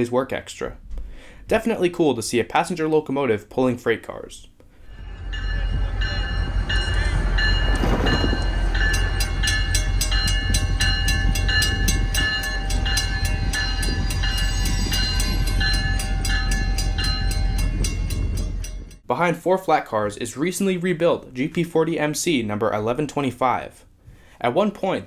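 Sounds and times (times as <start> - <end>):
crossing warning bells ringing: 4.8 - 19.0
diesel locomotive rumble: 4.8 - 19.0
faster clanging bell: 4.9 - 19.0.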